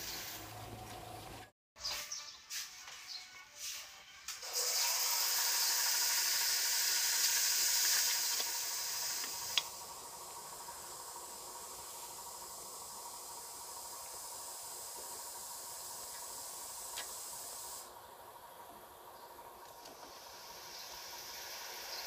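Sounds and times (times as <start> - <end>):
steady hiss: 4.7 - 22.0.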